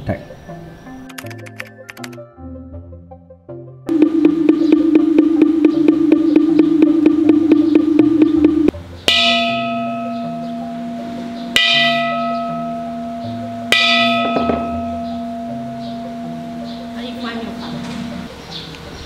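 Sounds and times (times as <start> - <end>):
bowl bell ringing: 9.1 - 18.3.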